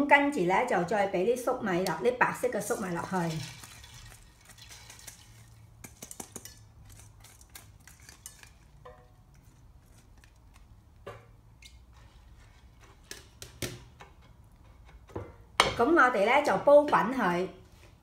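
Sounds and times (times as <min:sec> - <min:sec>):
spoon stirring in a pan: 0:02.7 - 0:15.1.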